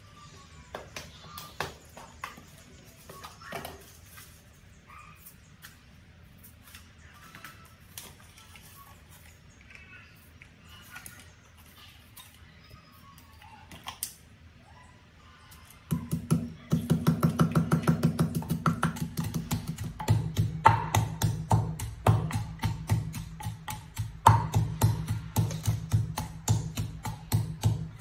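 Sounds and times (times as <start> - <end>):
pestle pounding in clay mortar: 15.9 - 28.0.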